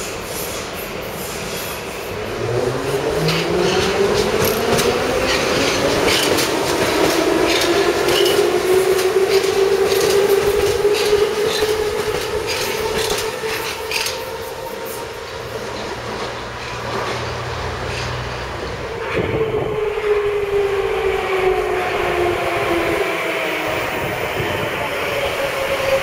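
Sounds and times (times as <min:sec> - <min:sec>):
train whine: 0:00.0 - 0:26.0
train wheels clicking over rail joints: 0:02.9 - 0:18.5.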